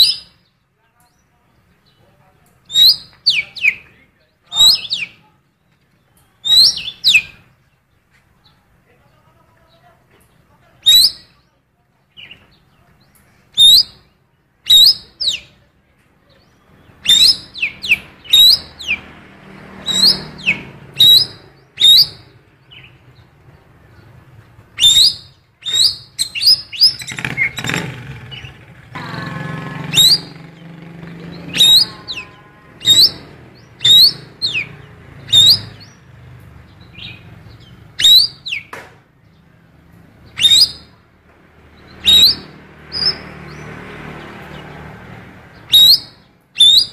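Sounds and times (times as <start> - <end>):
bird singing sharp chirps: 0.0 - 7.8, 9.7 - 11.5, 12.1 - 41.1, 41.7 - 46.9
bird warbled call: 4.5 - 5.2, 6.4 - 7.5, 10.8 - 11.4, 13.5 - 14.0, 14.7 - 15.6, 17.0 - 19.1, 19.8 - 22.4, 24.8 - 36.0, 38.0 - 38.7, 40.3 - 41.0, 42.0 - 43.4, 45.6 - 46.9.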